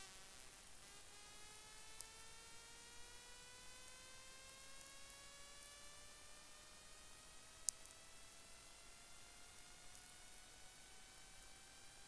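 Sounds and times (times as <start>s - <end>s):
tiny clicks: 1.7s - 2.3s, 7.6s - 8.0s, 9.5s - 10.2s.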